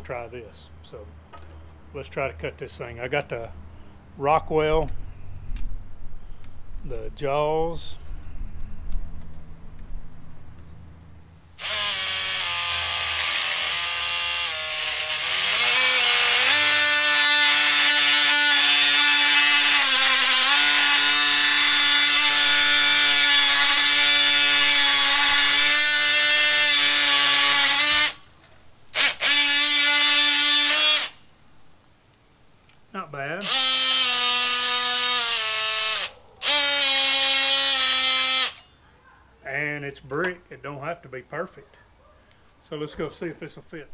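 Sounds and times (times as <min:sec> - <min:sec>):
oscillating multi-tool buzzing: 0:11.6 - 0:28.2, 0:28.9 - 0:31.2, 0:33.4 - 0:38.7.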